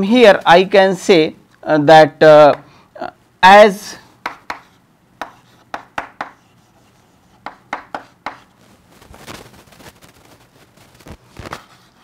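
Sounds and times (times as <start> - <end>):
chalk tapping on chalkboard: 4.2 - 8.5
chalk scratching on chalkboard: 4.3 - 8.5, 11.6 - 12.0.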